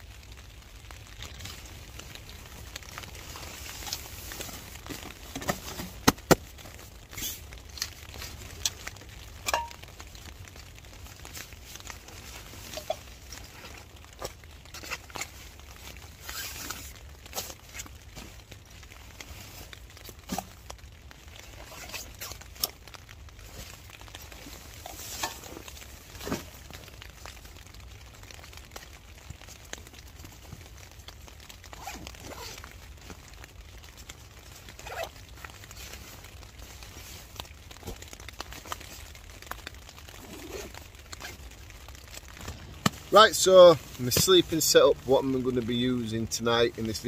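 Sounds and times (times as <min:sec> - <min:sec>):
fabric rustling and crinkling: 0:00.0 - 0:47.0
low steady rumble: 0:40.1 - 0:47.0.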